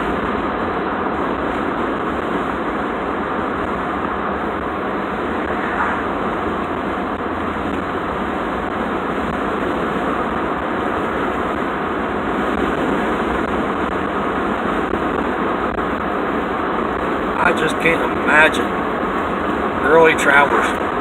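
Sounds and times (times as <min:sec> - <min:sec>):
truck cab road and engine noise: 0:00.0 - 0:21.0
car passing: 0:02.0 - 0:09.0.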